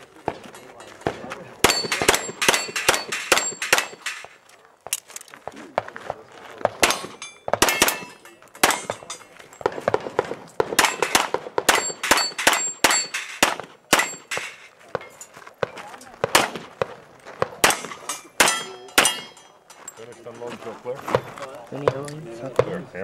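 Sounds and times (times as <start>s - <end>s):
handgun shots: 1.6s - 4.3s, 6.7s - 14.6s, 16.2s - 16.8s, 17.5s - 19.4s
steel targets ringing: 1.6s - 4.3s, 6.8s - 9.7s, 10.8s - 15.3s, 17.6s - 19.8s.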